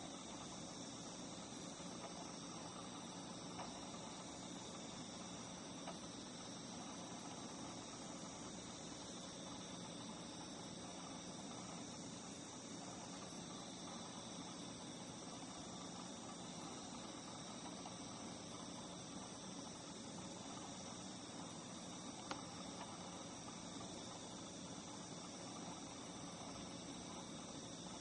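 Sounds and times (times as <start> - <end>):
insects trilling: 0.0 - 28.0.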